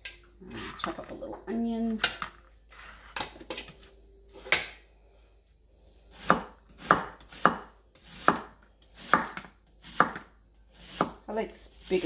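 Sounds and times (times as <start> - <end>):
knife cutting onion on board: 6.1 - 12.0.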